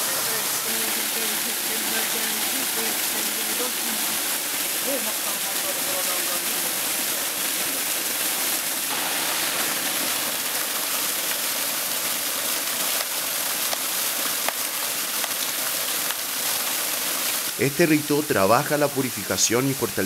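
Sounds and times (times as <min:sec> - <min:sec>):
waterfall splashing into pool: 0:00.0 - 0:20.0.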